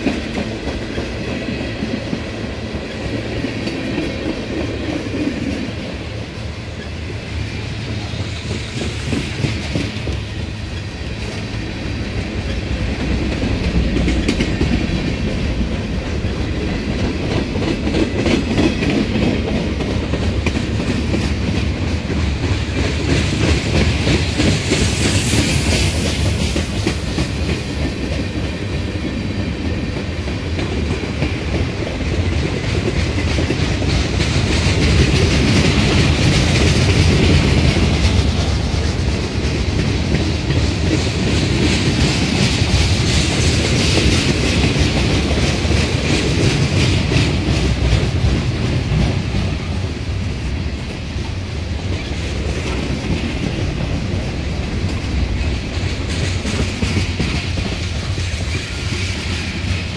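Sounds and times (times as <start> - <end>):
train wheels rumbling on rail: 0.0 - 59.9
wheels clacking over rail joints: 0.0 - 59.9.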